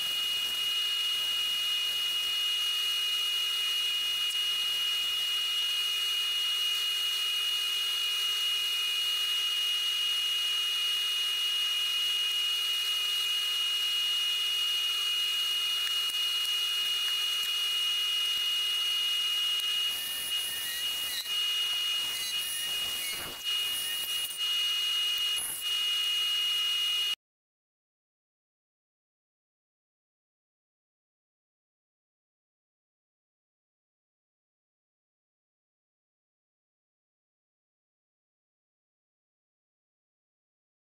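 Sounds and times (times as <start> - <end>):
wood lathe whining: 0.0 - 27.2.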